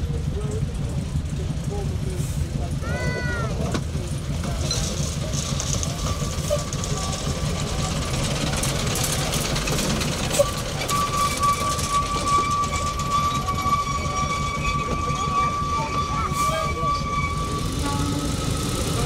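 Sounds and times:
diesel locomotive rumbling past: 0:00.0 - 0:19.0
high-pitched squeal: 0:05.8 - 0:19.0.

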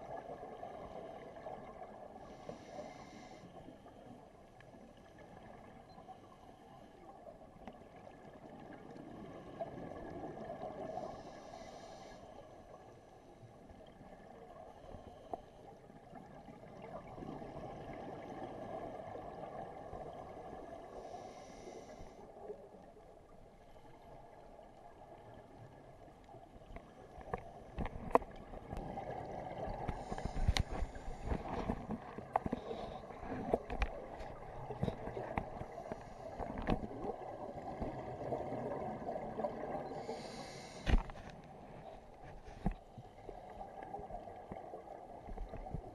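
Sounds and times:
diver breathing through regulator: 0:02.3 - 0:03.8, 0:10.9 - 0:12.4, 0:21.0 - 0:22.3, 0:29.8 - 0:33.8, 0:39.9 - 0:41.2
exhaled bubbles rumbling: 0:27.5 - 0:40.0.

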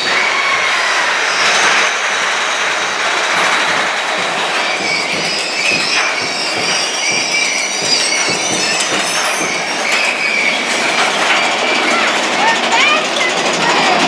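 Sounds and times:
roller coaster cars rumbling: 0:00.0 - 0:14.0
wheels squealing: 0:00.0 - 0:14.0
rattles and clacks: 0:01.4 - 0:14.0.

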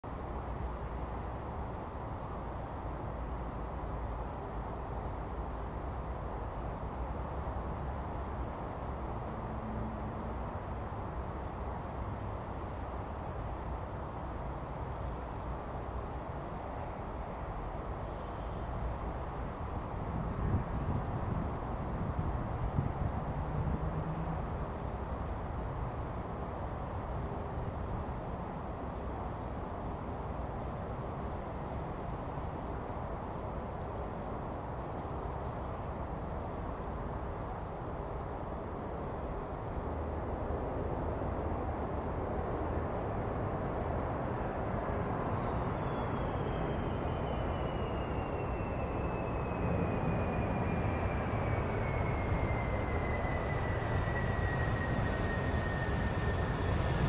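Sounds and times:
jet engine rumble: 0:37.7 - 0:57.0
high engine whine falling in pitch: 0:45.7 - 0:57.0.

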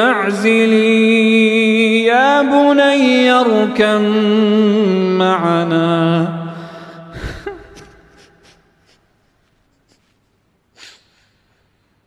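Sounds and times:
man chanting: 0:00.0 - 0:08.4
man sobbing and sniffling: 0:06.6 - 0:12.0.

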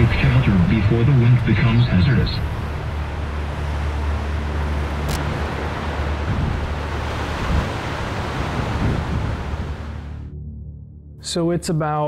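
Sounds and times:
heavy wind and rain: 0:00.0 - 0:10.2
wind buffeting microphone: 0:04.7 - 0:10.2.

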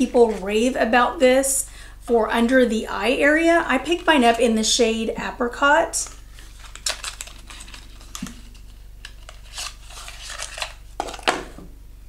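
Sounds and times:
paper rustling: 0:00.0 - 0:00.6, 0:06.0 - 0:11.6.

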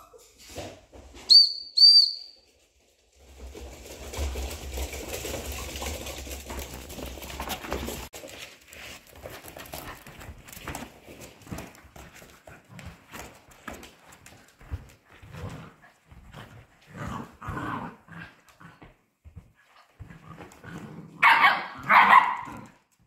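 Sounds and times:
high whistle notes: 0:01.3 - 0:02.4
puppies scuffling: 0:02.4 - 0:21.1
puppy paws pattering on floor: 0:02.6 - 0:21.1.

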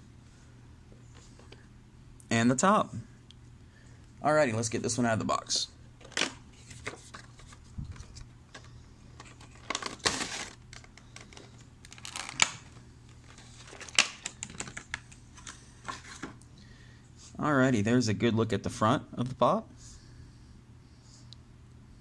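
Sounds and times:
plastic bag crinkling: 0:09.2 - 0:16.3.

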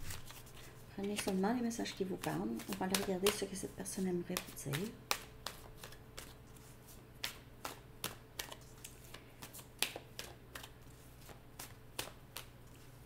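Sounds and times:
faint steady hum: 0:00.0 - 0:13.0
cards snapping and tapping: 0:02.2 - 0:03.6, 0:04.3 - 0:06.3, 0:07.2 - 0:12.6.

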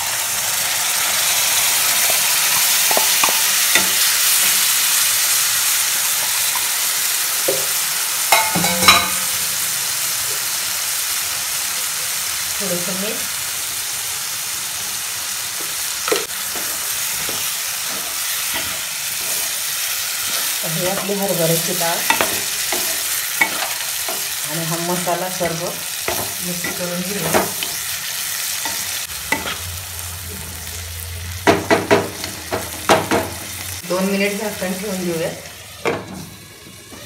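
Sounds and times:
lentils sizzling in hot oil: 0:00.0 - 0:37.0.

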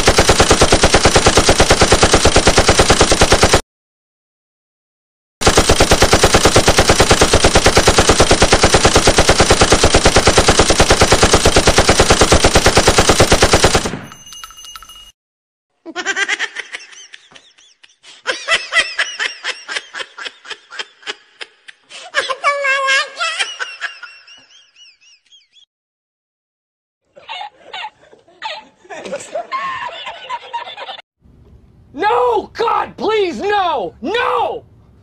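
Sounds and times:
machine-gun fire: 0:00.0 - 0:03.6, 0:05.4 - 0:14.2.

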